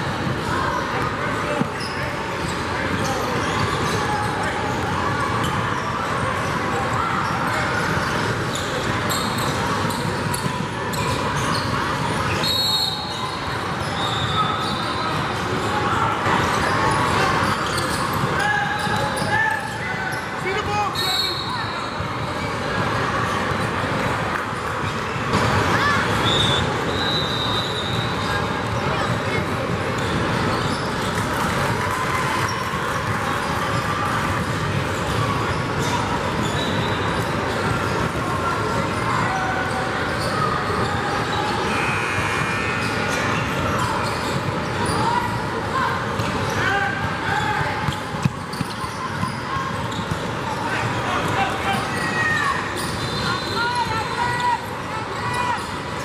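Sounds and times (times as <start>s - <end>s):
echoing hall noise: 0.0s - 56.0s
sneaker squeak: 0.1s - 56.0s
ball bouncing on wooden court: 47.8s - 50.3s.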